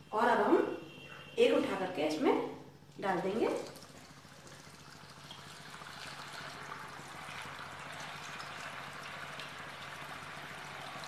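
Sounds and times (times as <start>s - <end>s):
dough deep-frying in oil: 2.9s - 11.0s.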